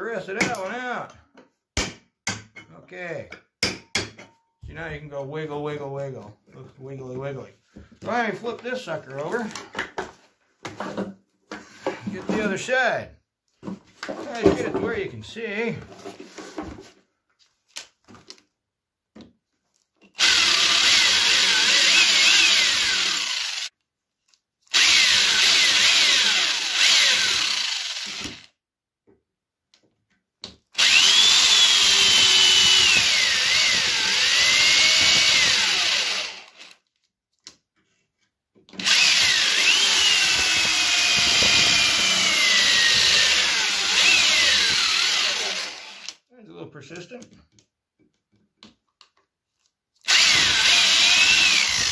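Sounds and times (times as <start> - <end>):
electric drill drilling metal: 20.2 - 23.7, 24.7 - 28.5, 30.8 - 36.8, 38.8 - 46.2, 50.0 - 51.9.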